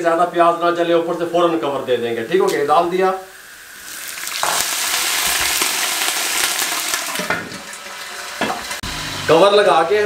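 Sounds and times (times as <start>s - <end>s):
hot oil sizzling and spattering: 2.3s - 9.2s.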